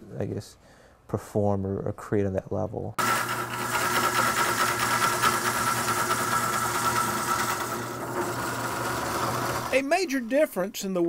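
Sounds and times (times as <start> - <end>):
wood lathe humming: 3.0 - 9.8.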